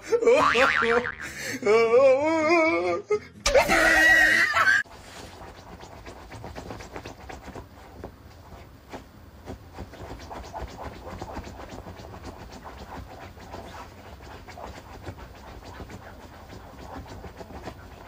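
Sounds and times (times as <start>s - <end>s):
dog scratching at bedding: 4.9s - 18.0s.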